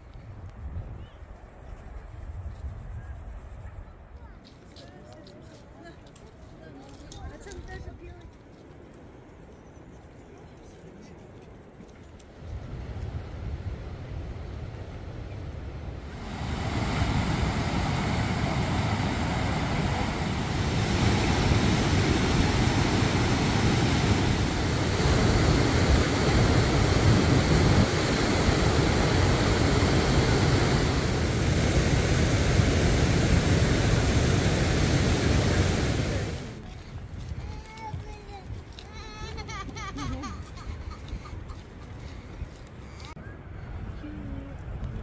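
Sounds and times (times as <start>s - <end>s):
river rushing over rocks: 16.1s - 36.6s.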